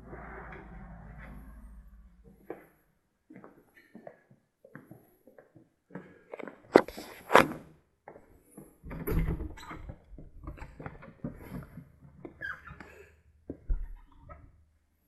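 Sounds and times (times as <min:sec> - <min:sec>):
footsteps on tiled floor: 0:02.4 - 0:07.2.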